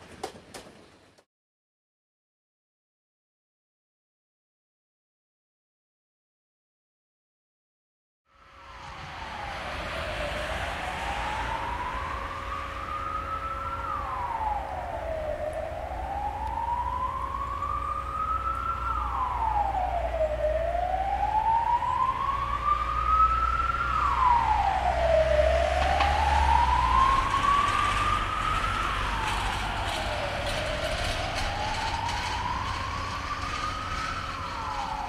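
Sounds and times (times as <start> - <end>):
wailing siren: 8.3 - 35.0
low rumble: 8.4 - 35.0.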